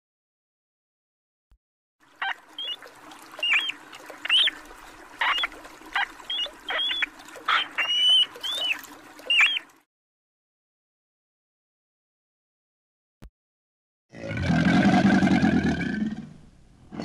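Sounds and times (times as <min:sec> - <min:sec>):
muskrat squeaking: 0:02.2 - 0:02.8, 0:03.4 - 0:04.6, 0:05.2 - 0:09.7.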